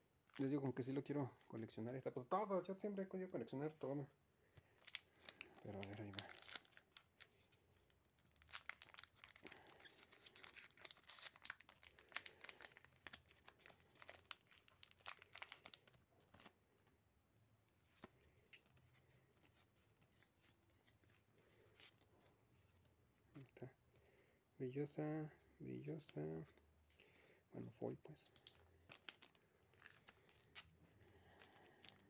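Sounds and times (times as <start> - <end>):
foil wrapper tearing and crinkling: 4.8 - 16.0.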